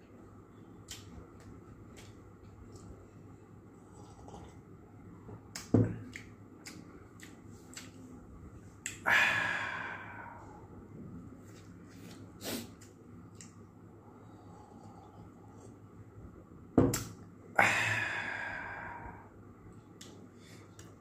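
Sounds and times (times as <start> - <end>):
mouth clicks and smacks: 0.8 - 3.0, 5.5 - 8.1.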